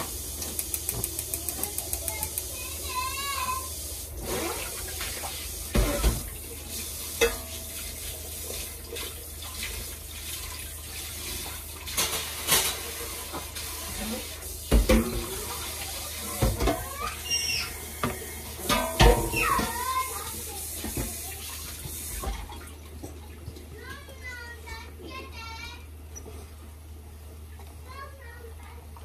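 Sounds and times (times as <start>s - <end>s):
water running: 0.0s - 29.0s
dishes and utensils clinking: 7.1s - 9.1s, 11.9s - 13.6s, 18.0s - 20.1s.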